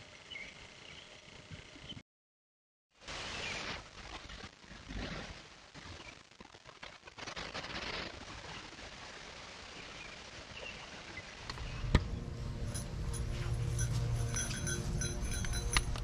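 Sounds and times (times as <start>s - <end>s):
small bells jingling: 12.6s - 16.0s.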